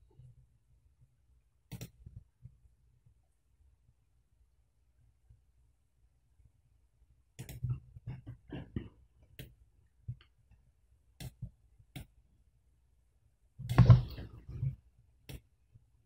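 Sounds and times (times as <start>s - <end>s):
computer mouse clicking: 1.7s - 2.0s, 7.4s - 7.7s, 11.2s - 12.2s.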